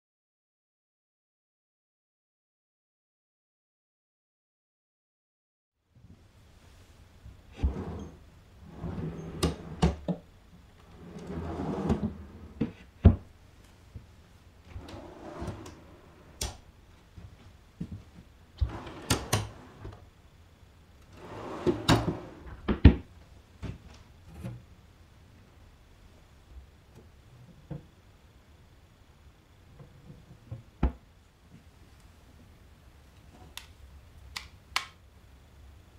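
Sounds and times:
wooden drawers sliding on runners: 7.5 - 10.1, 10.9 - 12.8, 14.7 - 16.6, 18.6 - 20.0, 21.2 - 22.8.

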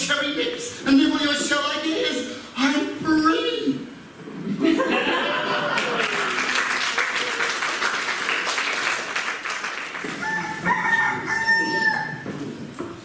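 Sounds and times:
audience applauding: 5.5 - 10.8
cockerel crowing: 10.2 - 12.4.

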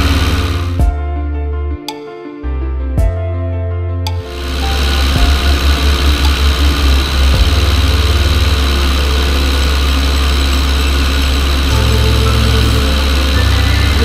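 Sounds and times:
airplane engine and propeller drone: 4.5 - 14.0.

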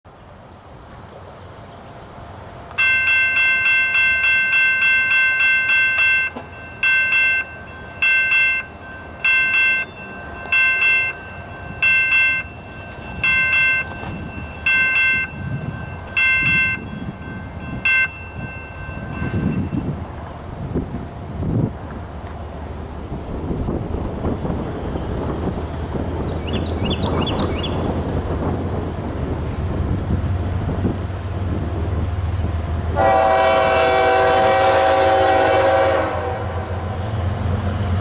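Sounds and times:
railroad crossing bell ringing: 2.8 - 20.6, 30.5 - 36.9.

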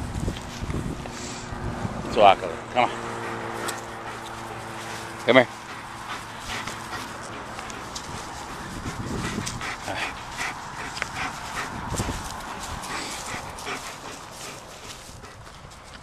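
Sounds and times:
dog panting: 1.1 - 16.0
scuffing and rustling: 3.6 - 16.0.

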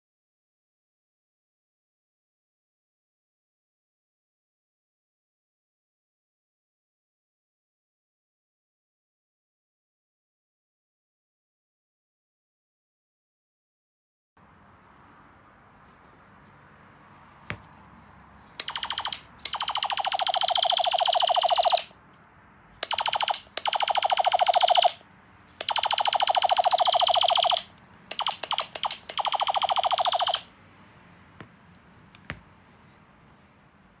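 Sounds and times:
clicks: 18.5 - 30.5
ray gun zapping laser bursts: 18.6 - 22.0, 22.8 - 30.5.

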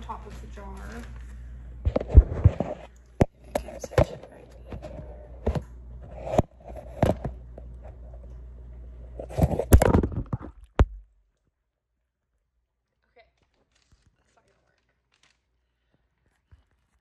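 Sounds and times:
plastic bag crinkling: 13.3 - 17.0.

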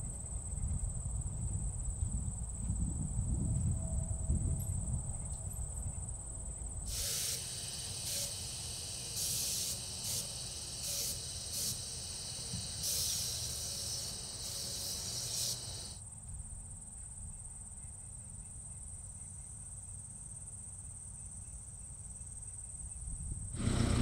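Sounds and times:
high insect drone: 6.8 - 16.0, 23.6 - 24.0
sprayer hissing bursts: 6.9 - 16.0, 23.6 - 24.0.

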